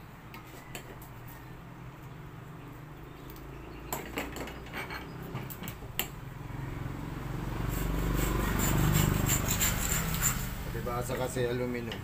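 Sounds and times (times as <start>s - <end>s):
saw rasping through aluminum: 7.6s - 10.8s.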